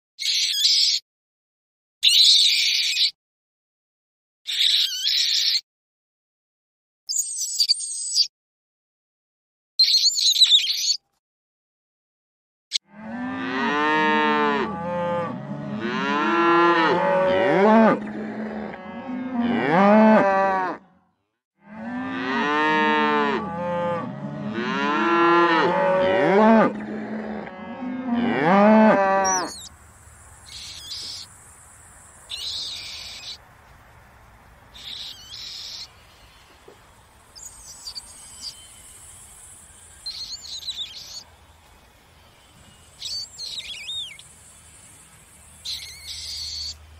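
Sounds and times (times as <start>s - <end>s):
cattle mooing: 12.8s - 20.9s, 21.6s - 29.7s
high-pitched chirps: 37.4s - 41.2s, 42.8s - 44.3s, 45.6s - 46.8s.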